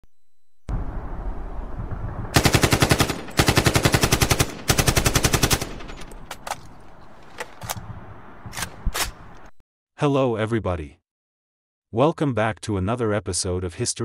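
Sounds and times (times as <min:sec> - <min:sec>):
automatic rifle fire: 0:02.4 - 0:06.9.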